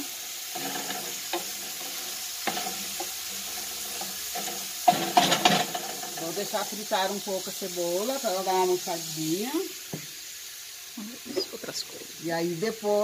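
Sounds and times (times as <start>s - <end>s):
onion sizzling in oil: 0.0s - 13.0s.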